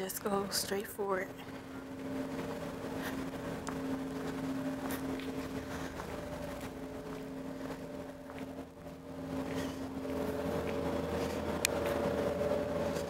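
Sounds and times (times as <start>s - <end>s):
steady machine hum: 0.0s - 13.0s
footsteps on hard floor: 2.4s - 8.7s.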